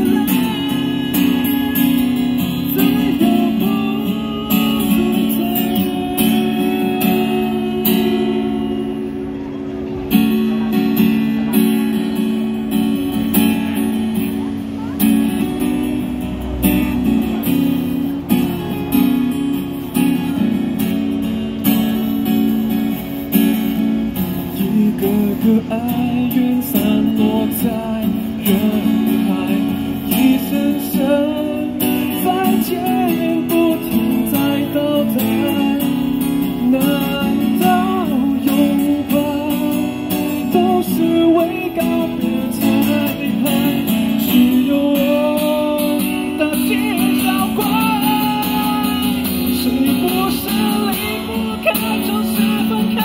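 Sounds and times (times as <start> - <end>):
person singing into a microphone: 0.0 - 9.2, 24.4 - 53.0
acoustic guitar strumming chords: 0.0 - 53.0.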